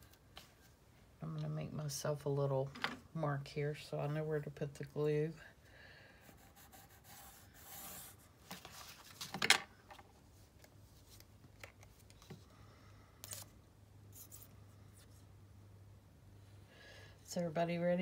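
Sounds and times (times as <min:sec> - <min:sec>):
pencil scratching: 0:06.2 - 0:08.3.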